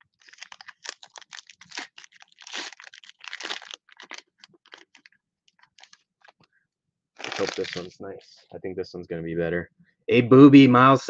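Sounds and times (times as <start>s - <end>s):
wrapper tearing and crinkling: 0.0s - 6.5s, 7.2s - 7.9s.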